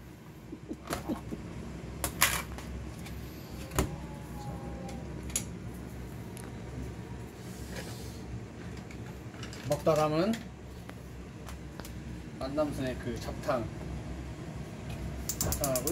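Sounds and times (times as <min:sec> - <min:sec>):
steady low hum: 0:00.0 - 0:15.9.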